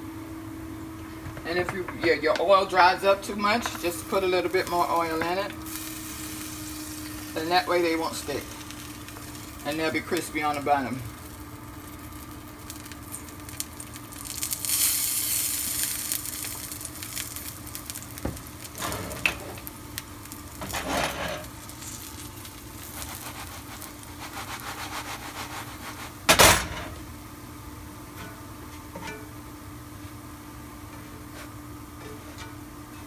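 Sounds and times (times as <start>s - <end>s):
dough sizzling in oil: 3.8s - 26.3s.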